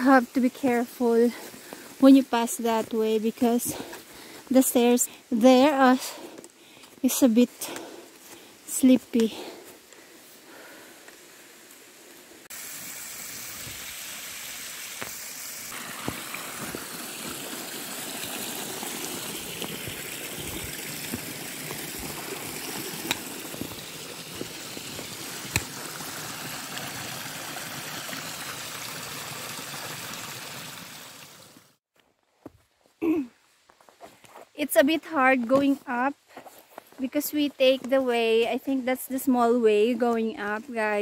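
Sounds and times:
stream trickling over rocks: 11.2s - 31.8s.

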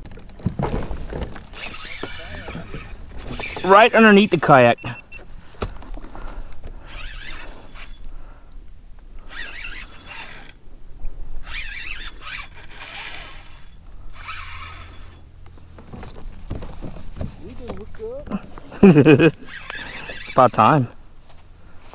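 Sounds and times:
spinning reel whirring: 1.5s - 4.6s, 6.8s - 8.1s, 9.2s - 10.6s, 11.4s - 15.4s, 19.2s - 20.9s.

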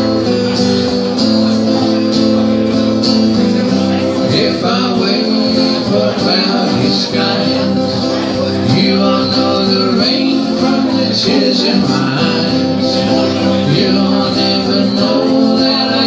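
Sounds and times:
acoustic guitar: 0.0s - 16.0s
man singing into a microphone: 3.6s - 16.0s.

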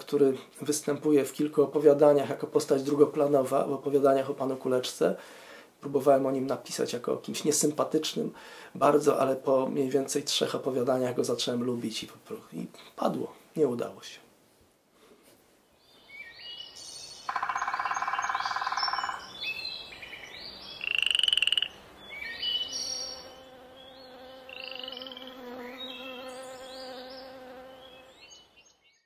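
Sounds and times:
chirping: 17.2s - 28.1s
insect buzzing: 17.3s - 19.3s, 20.8s - 28.6s
croaks: 17.3s - 19.4s, 20.8s - 21.8s.

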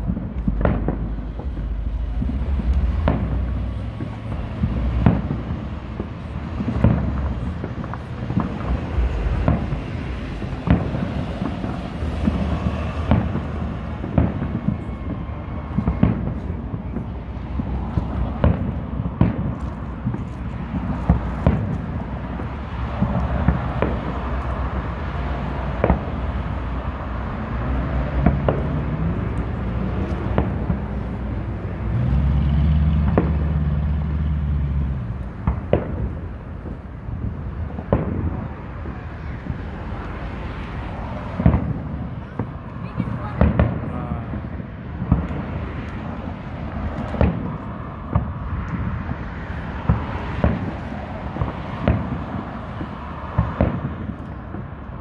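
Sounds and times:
low rumble: 0.0s - 20.2s
fireworks bangs: 0.0s - 55.0s.

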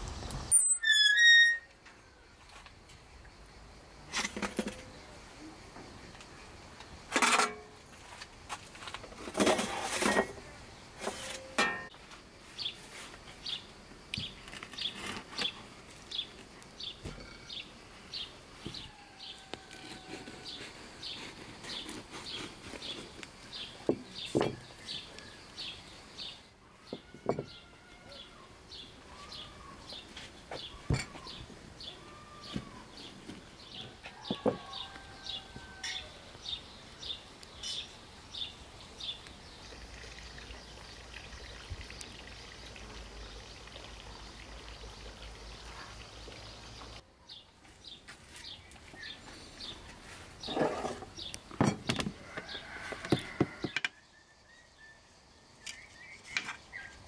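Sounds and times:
knife cutting bread: 19.6s - 23.2s.

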